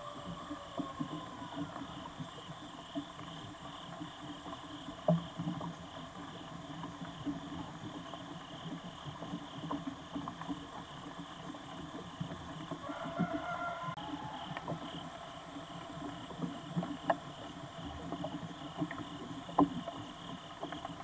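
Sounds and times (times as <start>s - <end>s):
night insects chorus: 0.0s - 21.0s.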